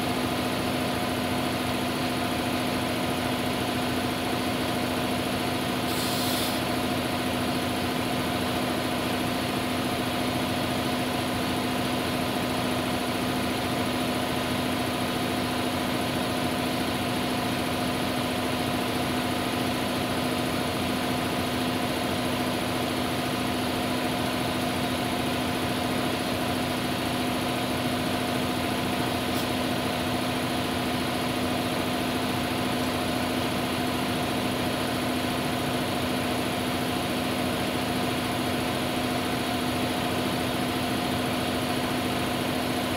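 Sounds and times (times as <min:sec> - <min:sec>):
compressed air hissing: 0:05.8 - 0:06.7.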